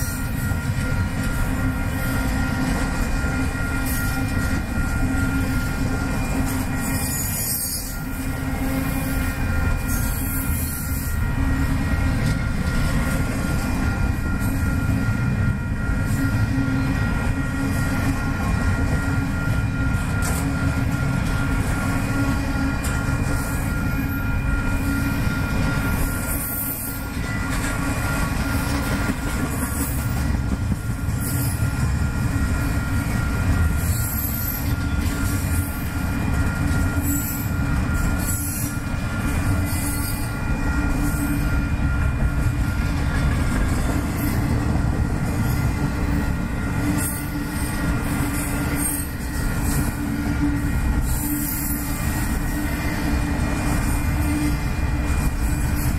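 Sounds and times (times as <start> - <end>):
high-pitched wheel squeal: 0.0 - 13.2, 32.6 - 38.9, 39.5 - 44.6, 45.4 - 55.9
freight train wheels rumbling: 0.0 - 55.9.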